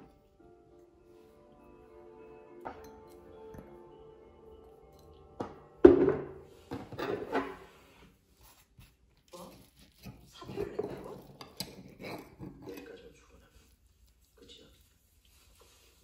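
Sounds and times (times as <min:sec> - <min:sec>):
sharp cutlery clink: 0:02.7 - 0:03.8
cutlery scraping a plate: 0:06.6 - 0:08.1, 0:09.5 - 0:13.3.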